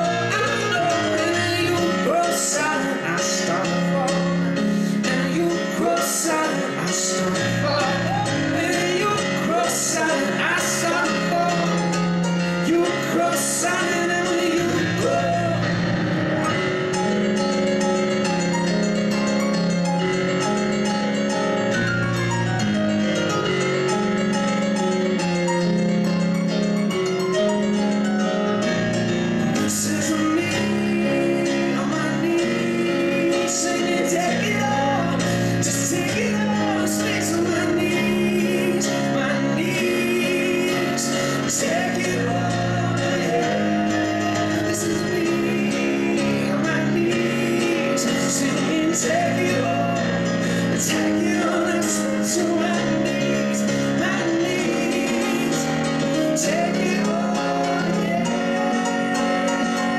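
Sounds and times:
man singing: 0.0 - 17.2, 29.4 - 59.9
stage piano playing chords: 0.0 - 59.9.

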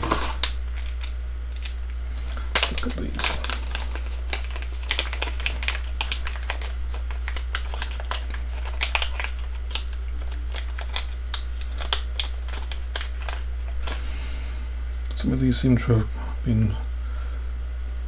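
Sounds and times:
plastic bag crinkling: 0.0 - 14.2
steady low hum: 0.0 - 18.0.

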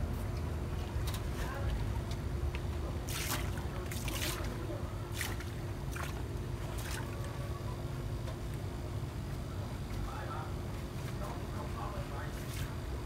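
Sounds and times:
steady low hum: 0.0 - 13.0
water splashing into tank: 3.0 - 7.3.

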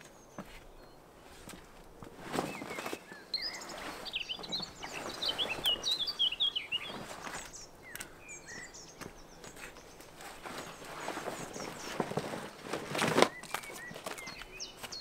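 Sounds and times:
songbird chirping and trilling: 0.0 - 15.0
soft scuffing: 0.4 - 6.0.

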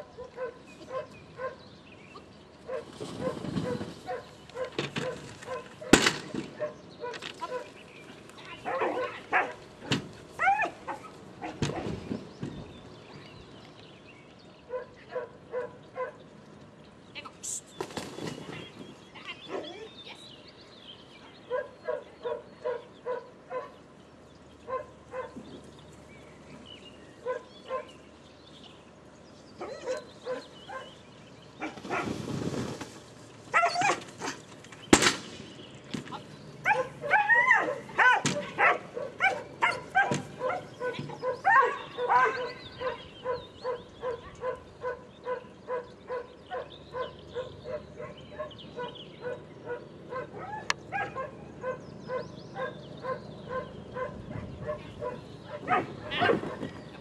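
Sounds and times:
dog barking: 0.1 - 1.6, 2.7 - 6.0, 6.6 - 7.7, 8.6 - 9.6, 14.7 - 16.2, 21.5 - 23.8, 24.7 - 25.4, 27.2 - 28.0, 29.6 - 31.0, 36.6 - 56.6.

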